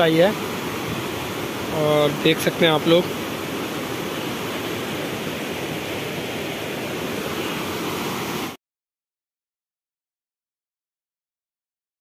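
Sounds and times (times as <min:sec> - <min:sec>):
river rushing over rocks: 0:00.0 - 0:08.6.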